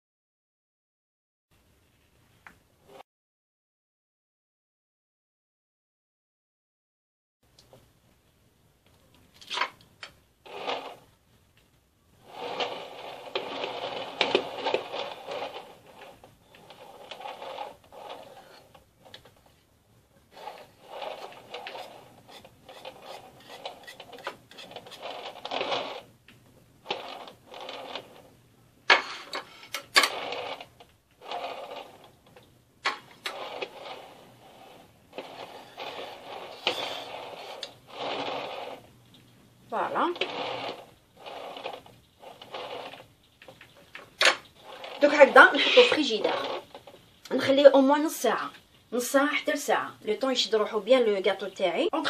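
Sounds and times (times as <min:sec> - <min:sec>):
palette knife scraping cream: 0:20.3 - 0:26.0.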